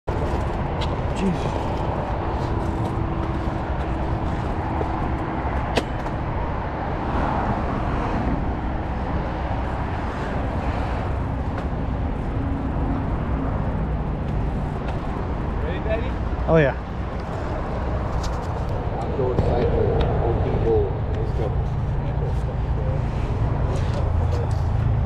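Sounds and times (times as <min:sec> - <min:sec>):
bike tyres rolling on pavement: 0:00.1 - 0:18.9.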